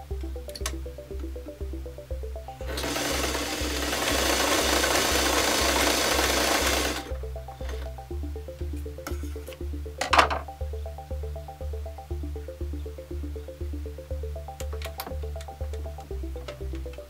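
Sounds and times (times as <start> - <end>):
background music with steady beat: 0.0 - 17.0
sewing machine running: 2.6 - 7.1.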